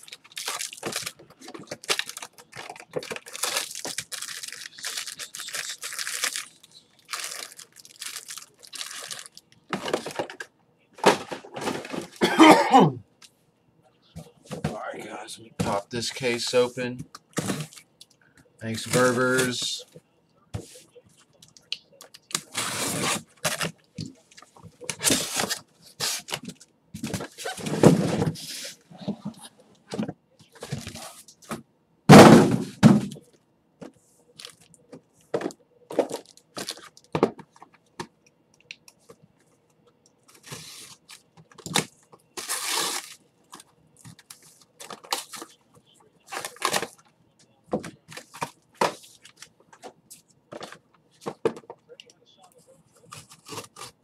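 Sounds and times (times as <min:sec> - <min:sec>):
card packs rustling and cracking: 0:00.0 - 0:10.5, 0:17.3 - 0:18.0, 0:18.6 - 0:19.8, 0:22.0 - 0:28.4, 0:34.4 - 0:38.2, 0:40.2 - 0:45.6, 0:46.2 - 0:47.1, 0:47.8 - 0:51.8, 0:53.0 - 0:54.0.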